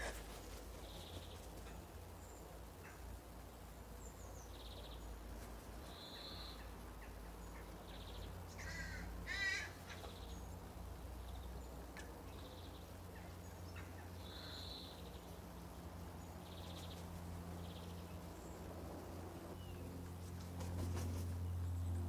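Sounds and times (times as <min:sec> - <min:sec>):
small birds chirping: 0:00.0 - 0:22.0
raven calling harshly: 0:08.5 - 0:10.0.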